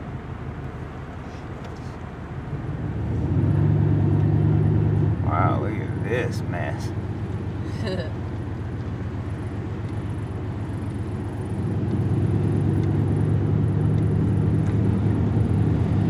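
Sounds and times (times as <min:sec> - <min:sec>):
truck engine and road rumble: 0:00.0 - 0:16.0.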